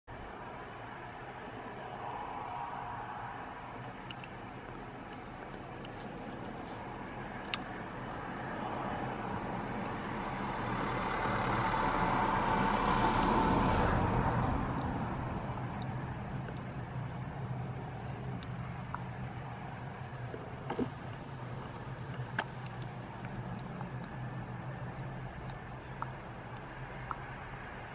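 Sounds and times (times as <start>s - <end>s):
steady low hum: 0.1s - 27.9s
vehicle passing by: 0.5s - 27.9s
faint clicks: 3.8s - 6.6s, 7.3s - 7.8s, 11.2s - 11.6s, 15.6s - 16.8s, 20.2s - 27.3s.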